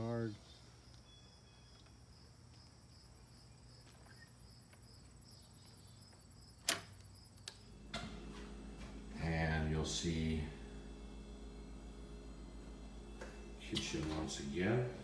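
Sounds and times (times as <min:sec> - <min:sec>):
insects chirping: 0:00.4 - 0:07.9
sharp click: 0:06.6 - 0:08.1.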